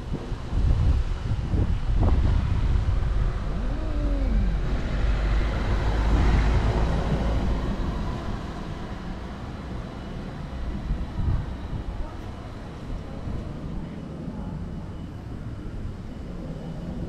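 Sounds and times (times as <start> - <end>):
low outdoor rumble: 0.0 - 17.0
cat meowing: 3.5 - 4.6.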